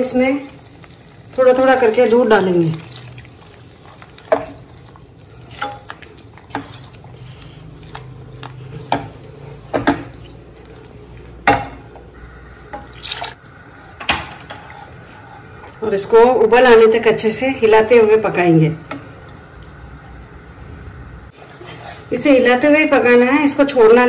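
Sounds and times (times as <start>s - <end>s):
spoon stirring gravy: 0.1s - 13.0s, 13.6s - 16.3s, 21.3s - 22.4s.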